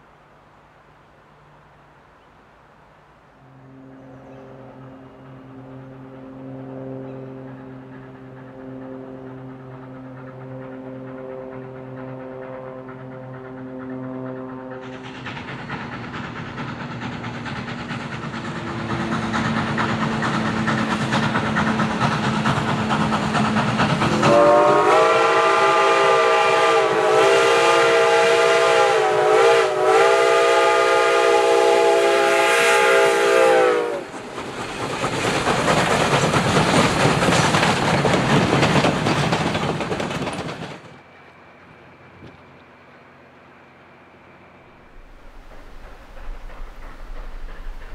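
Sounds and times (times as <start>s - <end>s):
steam locomotive exhaust: 3.3s - 47.9s
steam whistle blast: 12.0s - 15.2s, 24.1s - 34.1s.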